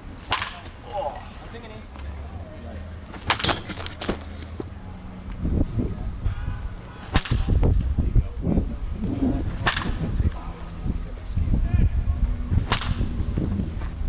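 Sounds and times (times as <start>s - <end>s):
bat cracking ball: 0.2s - 0.8s, 3.2s - 4.2s, 7.0s - 7.6s, 9.4s - 10.1s, 12.5s - 13.1s
steady low rumble: 4.3s - 14.0s.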